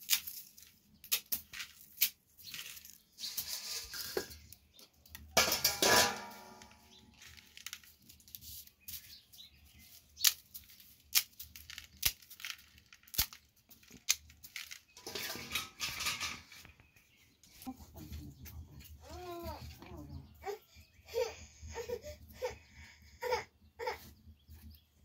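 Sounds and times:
crackling and rustling of broken pasta: 0:00.0 - 0:17.7
dry spaghetti snapping: 0:10.2 - 0:14.7.

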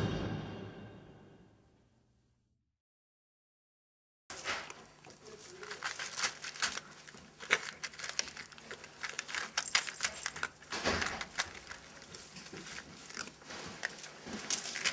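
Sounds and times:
cat crunching dry kibble: 0:04.3 - 0:14.9
kibble clicking against bowl: 0:05.7 - 0:14.9.

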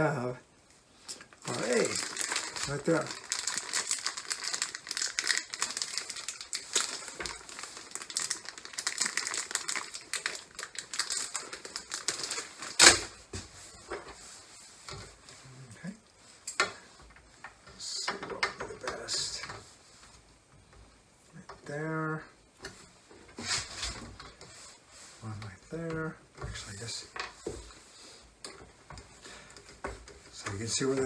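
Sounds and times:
plastic bag crinkling: 0:01.3 - 0:12.9.

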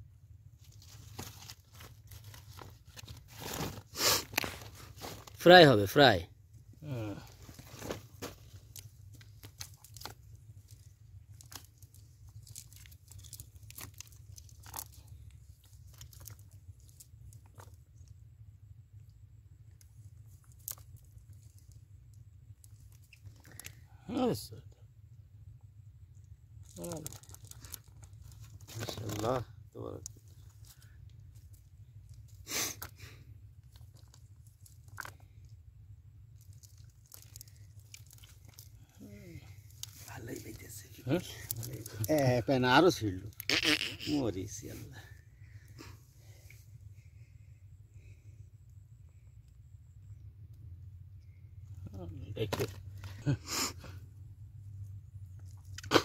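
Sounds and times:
low steady rumble: 0:00.0 - 0:56.0
crunches and rustles of net on shells: 0:00.5 - 0:05.4, 0:07.3 - 0:18.1, 0:26.6 - 0:29.4, 0:33.6 - 0:35.5, 0:36.3 - 0:42.2
net crunching on dry leaves: 0:00.7 - 0:05.4, 0:11.4 - 0:14.9.

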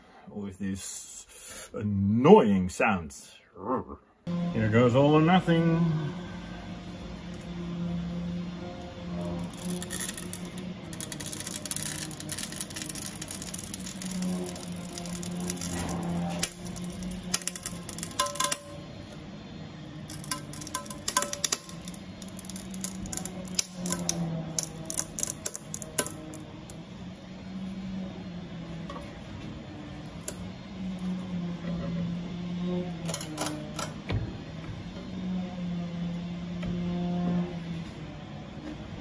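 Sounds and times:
steady low hum: 0:03.3 - 0:39.0
metallic clicks and creaks: 0:09.2 - 0:19.2, 0:20.0 - 0:26.8, 0:33.0 - 0:34.0.

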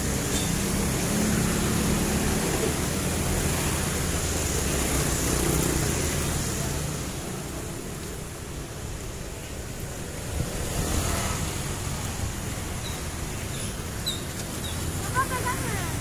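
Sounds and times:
wind rushing over microphone: 0:08.3 - 0:14.0.

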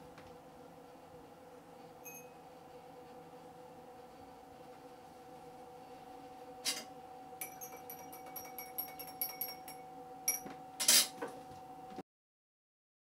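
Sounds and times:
steady hum: 0:00.0 - 0:12.0
spoon clinking in a glass: 0:07.4 - 0:10.5.

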